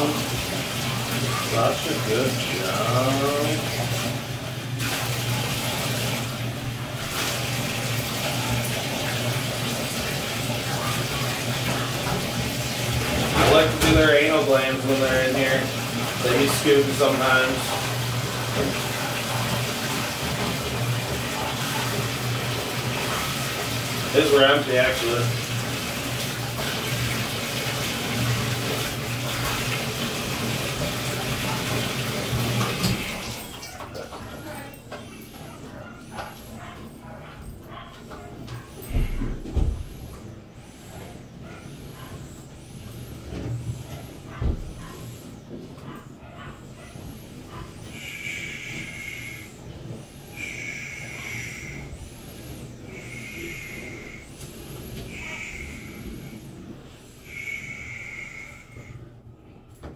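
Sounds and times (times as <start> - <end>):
water splashing in tub: 0.0 - 35.3
water running from bathtub faucet: 0.0 - 59.9
tap running into bathtub: 7.0 - 35.1.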